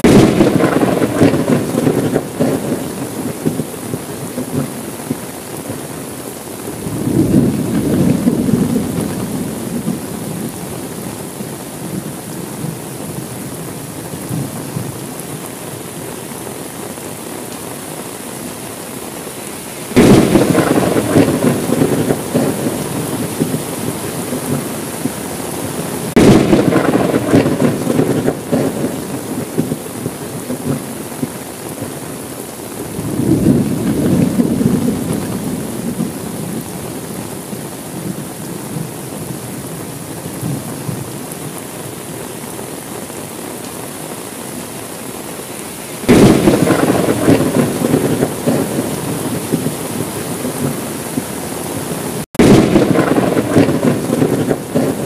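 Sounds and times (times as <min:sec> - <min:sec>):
thunder: 0:00.0 - 0:05.2, 0:06.8 - 0:10.6, 0:19.9 - 0:25.2, 0:26.1 - 0:31.3, 0:32.9 - 0:36.7, 0:46.1 - 0:51.3, 0:52.4 - 0:55.0
steady rain: 0:00.0 - 0:55.0.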